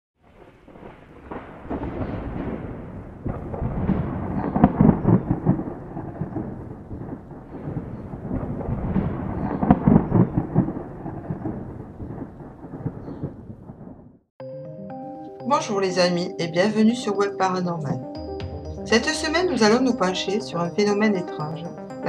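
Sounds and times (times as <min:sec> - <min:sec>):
rain: 0:00.2 - 0:12.9
rolling thunder: 0:00.2 - 0:14.3.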